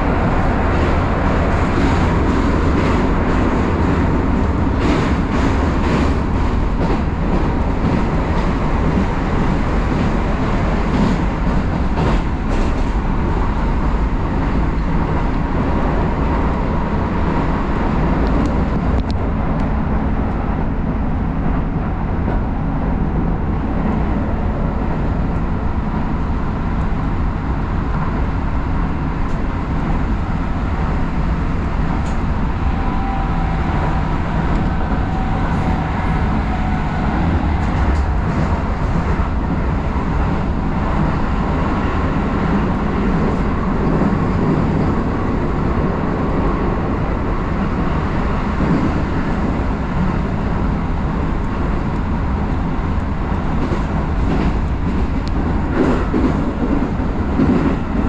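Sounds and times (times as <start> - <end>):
train rumbling on track: 0.0 - 58.0
sharp clicks of train wheels: 51.4 - 58.0.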